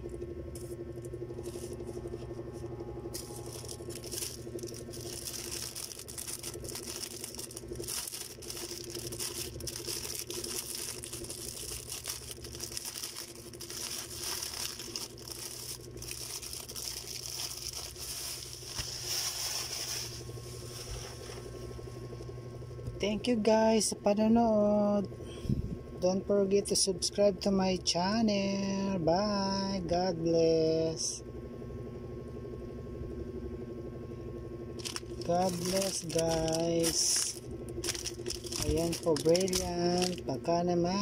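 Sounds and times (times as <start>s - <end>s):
steady low hum: 0.0s - 41.0s
plastic bags crinkling: 1.2s - 2.2s, 3.1s - 21.6s, 34.8s - 40.3s.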